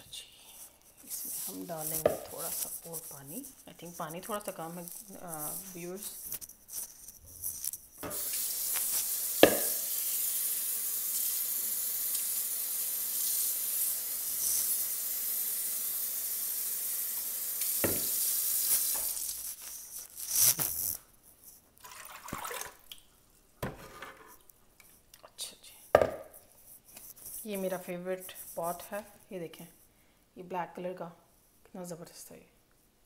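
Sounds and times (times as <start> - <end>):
water running into a pan: 8.0 - 19.4, 21.8 - 23.0
sharp knock: 9.4 - 9.8.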